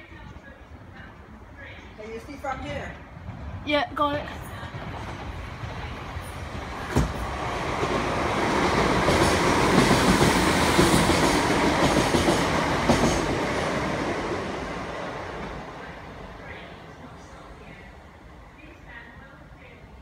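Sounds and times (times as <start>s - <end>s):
train wheels rumbling and clacking: 2.7s - 16.3s.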